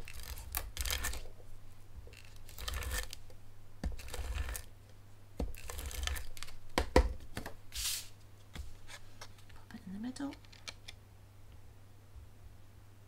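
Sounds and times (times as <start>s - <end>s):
paper rustling and sliding: 7.7s - 9.4s.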